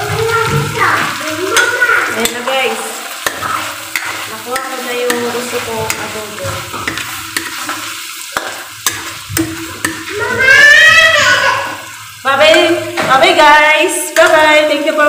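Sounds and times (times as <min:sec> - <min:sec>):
food sizzling: 0:00.0 - 0:15.0
metal spatula scraping a wok: 0:03.1 - 0:10.1.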